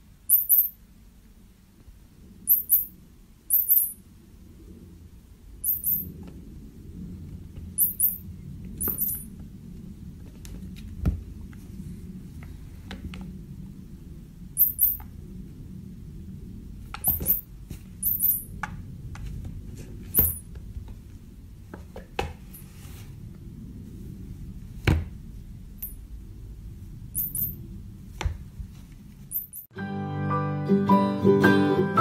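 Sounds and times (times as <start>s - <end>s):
low steady hum: 0.0s - 29.7s.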